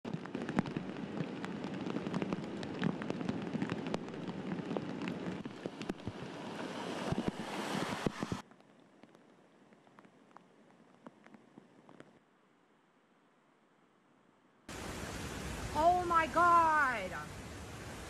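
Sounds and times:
torrential rain pouring: 0.0s - 12.2s, 14.7s - 18.0s
floodwater rushing: 0.1s - 9.2s, 14.7s - 18.0s.

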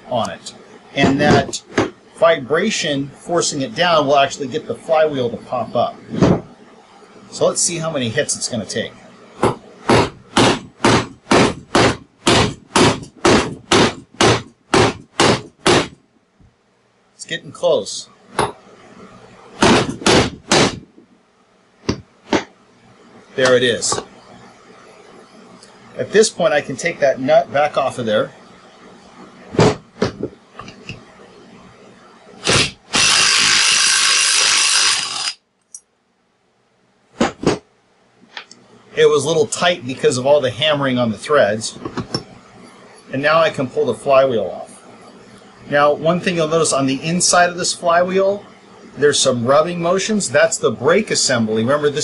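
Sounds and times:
cordless power tool spinning: 32.4s - 35.4s.

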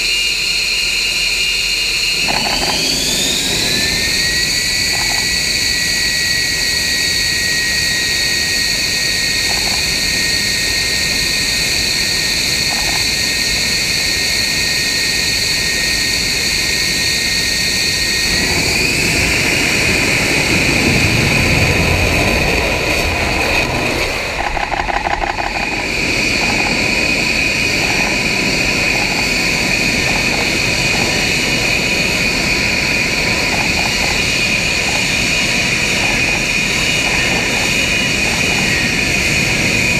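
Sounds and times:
jet engine high whine: 0.0s - 39.9s
deep engine rumble: 17.8s - 39.9s.

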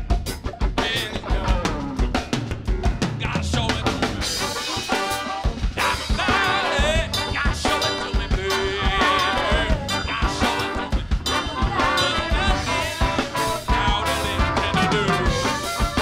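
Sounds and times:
live funk band playing: 0.0s - 16.0s
horn section: 3.2s - 16.0s.

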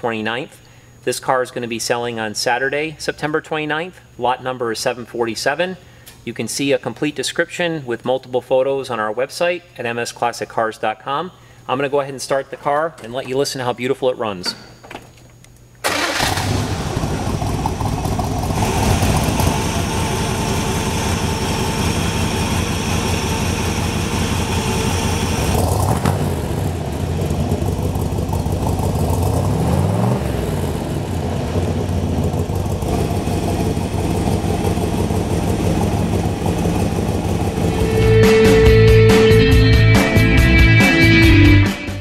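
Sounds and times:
car engine idling: 15.9s - 39.9s.

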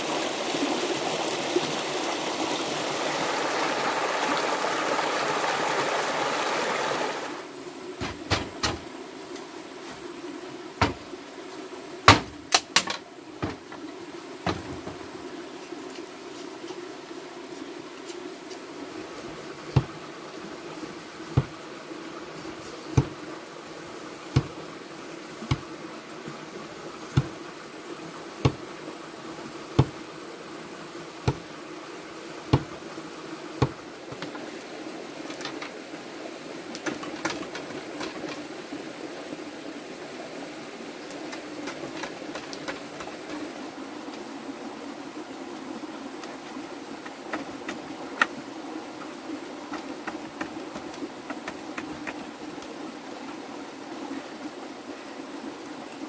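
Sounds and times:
knife chopping bamboo: 12.1s - 13.0s, 19.7s - 20.0s, 21.4s - 21.6s, 22.9s - 23.2s, 24.3s - 24.6s, 25.4s - 25.7s, 27.1s - 27.4s, 28.4s - 28.7s, 29.8s - 30.0s, 31.2s - 31.5s, 32.5s - 32.8s, 33.6s - 34.3s
bamboo strips clicking and rustling: 12.1s - 13.9s, 33.6s - 35.8s, 36.7s - 38.7s, 41.1s - 43.5s, 46.2s - 48.4s, 49.0s - 52.7s.

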